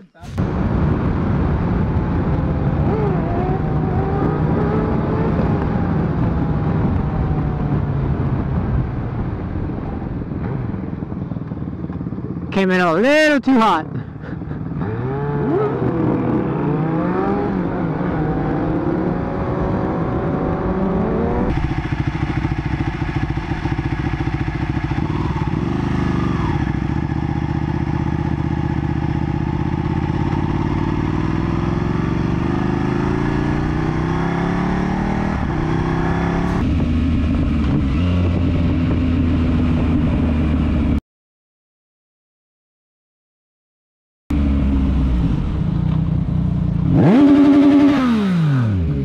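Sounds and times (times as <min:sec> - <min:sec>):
motorcycle engines accelerating: 0:00.2 - 0:41.0, 0:44.3 - 0:49.0.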